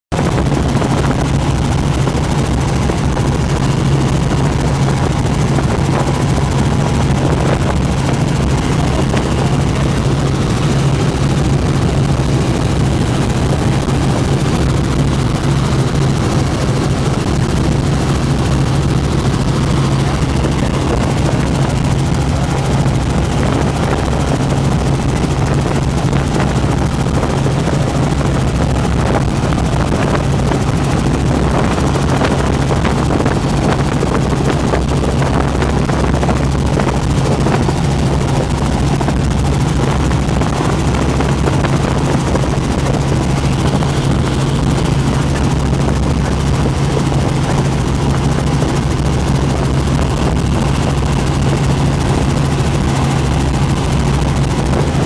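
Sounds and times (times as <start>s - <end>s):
helicopter engine and rotor drone: 0.0s - 55.0s.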